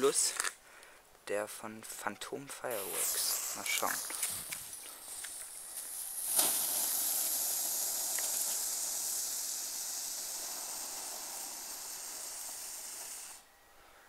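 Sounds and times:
firework fountain hissing: 0:02.7 - 0:13.5.

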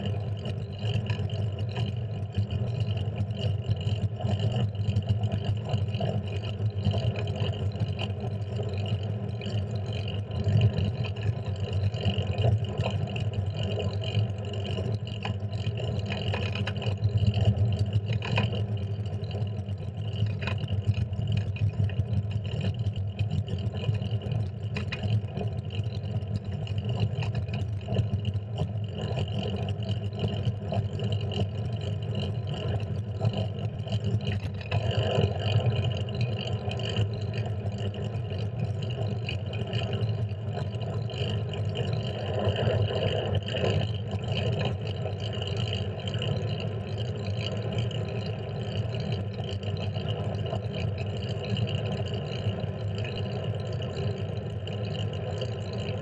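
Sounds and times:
bicycle road rumble: 0:00.0 - 0:56.0.

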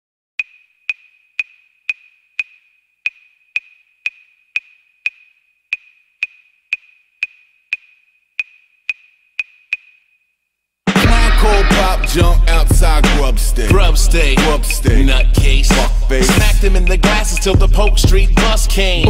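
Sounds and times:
woodblock-like clicks: 0:00.4 - 0:10.3.

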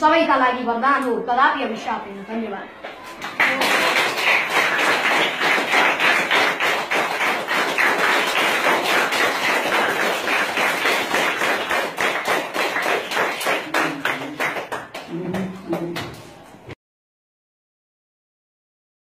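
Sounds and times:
children applauding: 0:02.8 - 0:16.2.

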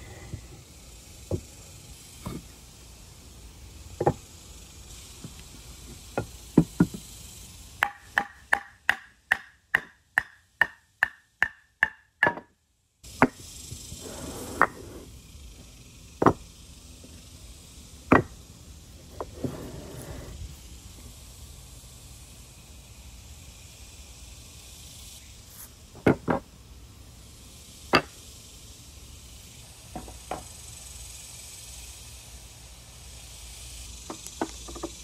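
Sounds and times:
wooden knocks and taps: 0:34.1 - 0:35.0.

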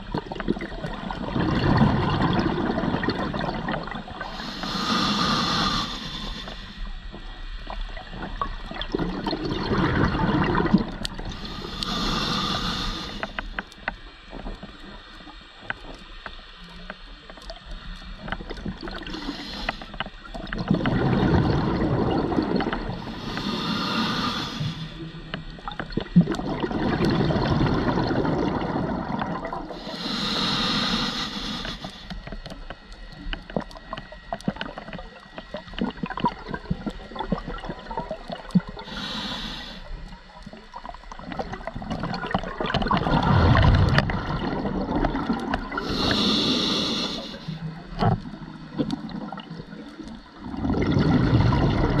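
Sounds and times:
bubbling gurgle of exhaled air: 0:00.0 - 0:16.0, 0:17.4 - 0:52.0
small clicks and crackles: 0:00.0 - 0:50.6
regulator inhalation hiss: 0:04.2 - 0:07.0, 0:11.3 - 0:13.9, 0:19.0 - 0:20.0, 0:22.9 - 0:25.2, 0:29.7 - 0:32.4, 0:38.7 - 0:40.1, 0:45.7 - 0:48.0.

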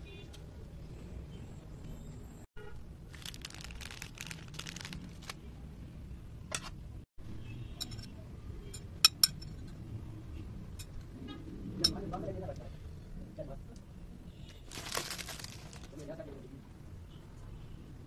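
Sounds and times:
light rustling handling noise: 0:14.7 - 0:16.2.

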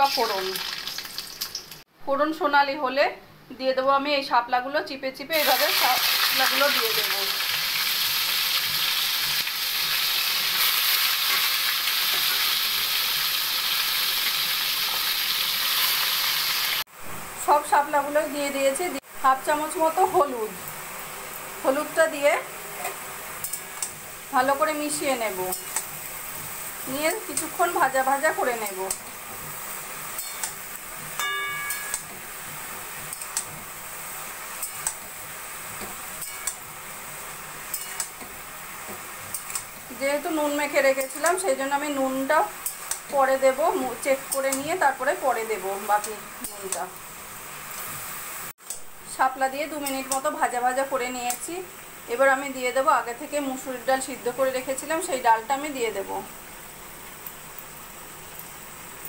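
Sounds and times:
stems sizzling in hot oil: 0:00.0 - 0:01.9, 0:05.2 - 0:59.0
metal spatula scraping a pan: 0:37.6 - 0:38.1.

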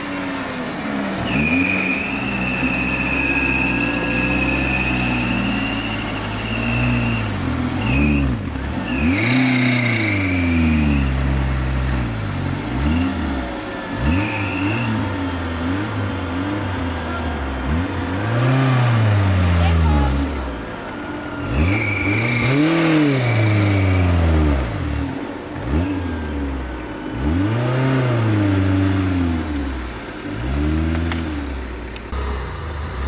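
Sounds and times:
engine revving hard: 0:01.1 - 0:20.5, 0:21.4 - 0:26.5, 0:27.1 - 0:31.5.

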